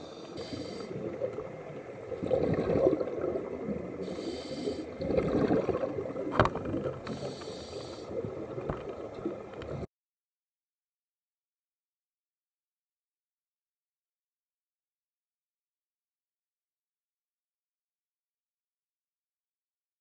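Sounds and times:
hissing regulator inhalations: 0.0s - 1.1s, 4.0s - 5.0s, 7.0s - 8.2s
bubbling exhalations: 2.1s - 7.2s.

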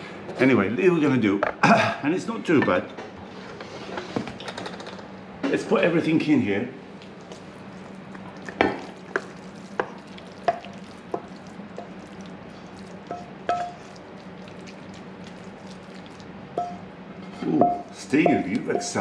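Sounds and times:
spatula knocking on pan and dish: 13.1s - 13.8s, 16.6s - 16.8s.

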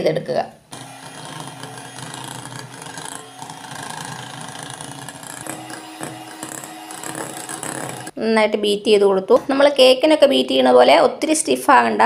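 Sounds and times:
electric hand mixer whipping cream: 0.7s - 8.2s.

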